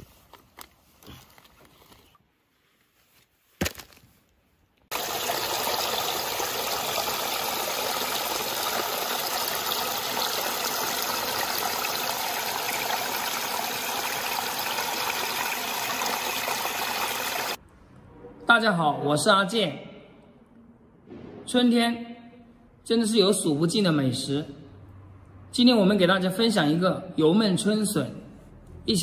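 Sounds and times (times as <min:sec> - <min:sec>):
stream splashing over rocks: 0:04.9 - 0:17.6.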